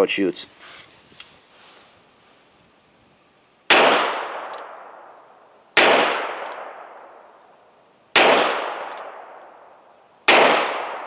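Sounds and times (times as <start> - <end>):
faint echo of gunshot: 3.7 - 5.0, 5.8 - 7.1, 8.2 - 9.4, 10.3 - 11.0.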